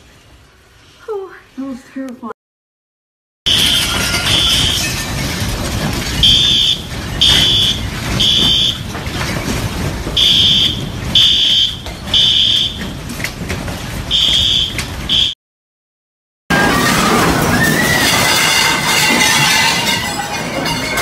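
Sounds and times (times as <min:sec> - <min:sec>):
fire alarm beeping: 0:03.5 - 0:05.0, 0:06.2 - 0:09.0, 0:10.2 - 0:13.0, 0:14.1 - 0:15.4.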